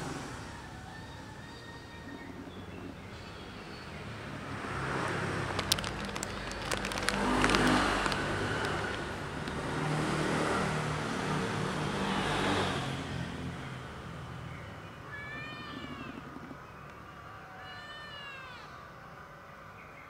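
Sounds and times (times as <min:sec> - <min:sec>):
vehicle engine rumbling by: 0:00.0 - 0:15.1
kitten meowing: 0:15.1 - 0:16.2.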